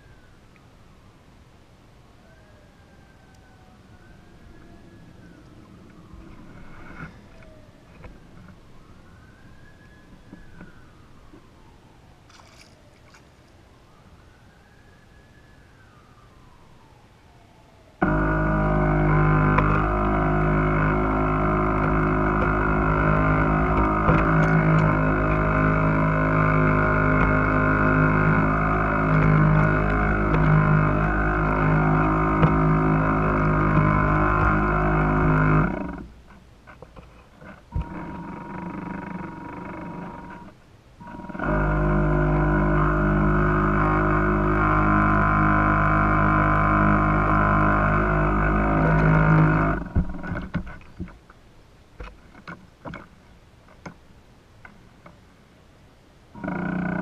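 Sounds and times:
faint wailing tone: 2.0 - 36.1
music of sustained chords: 18.0 - 36.1.

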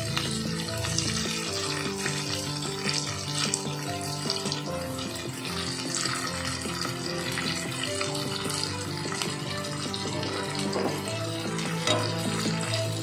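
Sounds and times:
background music with held notes: 0.0 - 13.0
tofu sizzling in oil: 0.0 - 13.0.

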